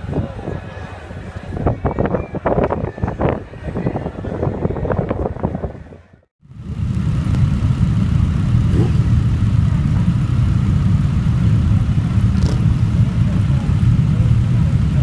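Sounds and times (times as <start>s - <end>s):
motorcycle engines idling: 6.4s - 15.0s.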